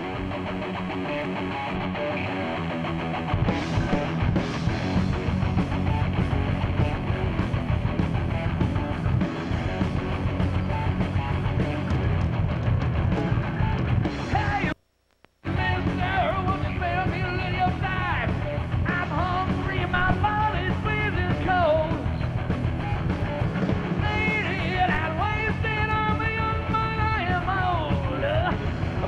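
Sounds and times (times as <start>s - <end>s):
electric guitar lead bending: 0.0s - 14.2s
bass guitar: 0.0s - 14.8s, 15.4s - 29.0s
drums: 0.0s - 29.0s.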